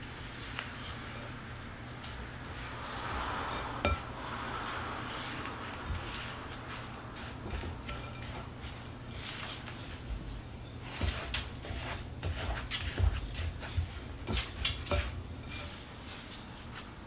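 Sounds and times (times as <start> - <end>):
utensils and dishes clinking: 5.8 - 10.0, 10.6 - 16.4.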